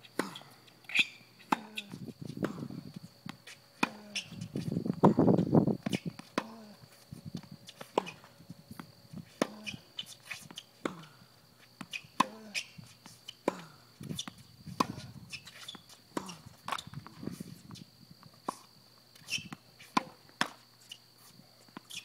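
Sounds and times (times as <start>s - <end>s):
tennis racket hitting ball: 19.4s - 20.6s.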